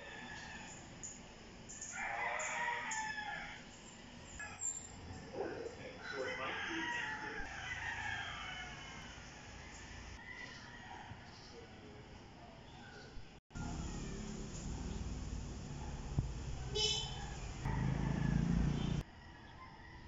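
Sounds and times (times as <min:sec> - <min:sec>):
rooster crowing: 0:00.0 - 0:00.8, 0:01.7 - 0:03.7, 0:06.0 - 0:11.6, 0:13.5 - 0:20.0.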